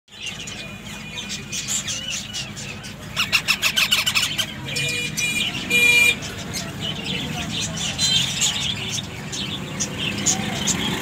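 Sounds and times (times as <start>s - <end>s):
parrot nestlings chirping: 1.2s - 7.0s.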